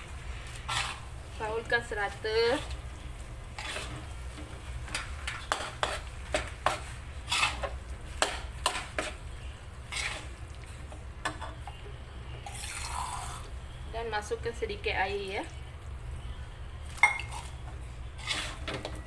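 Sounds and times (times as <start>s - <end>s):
metal spatula scraping a wok: 0.3s - 2.8s, 3.5s - 10.4s, 18.0s - 18.9s.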